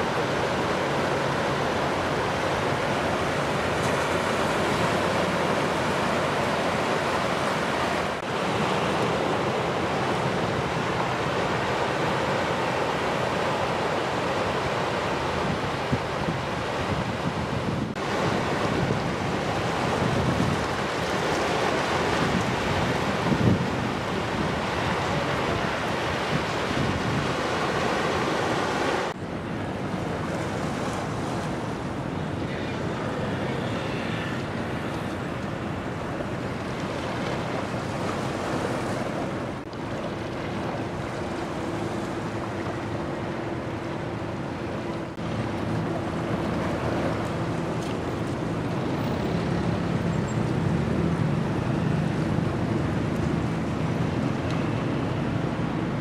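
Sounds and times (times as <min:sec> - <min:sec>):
waves: 0:00.0 - 0:56.0
wind buffeting microphone: 0:15.2 - 0:56.0.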